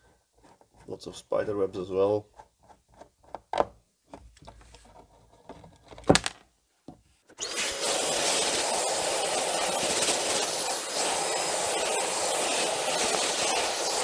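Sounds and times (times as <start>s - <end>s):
handling noises: 4.2s - 7.0s
cleaning tool air rush: 7.4s - 14.0s.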